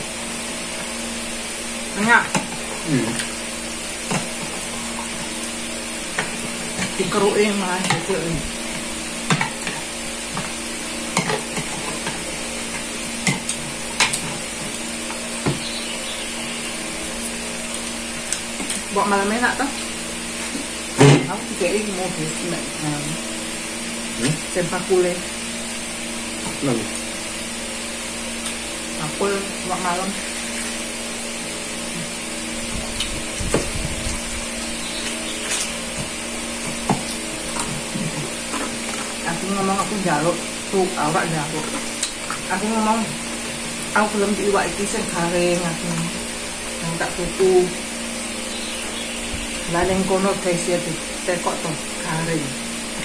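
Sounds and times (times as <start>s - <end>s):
machine hum with hiss: 0.0s - 53.0s.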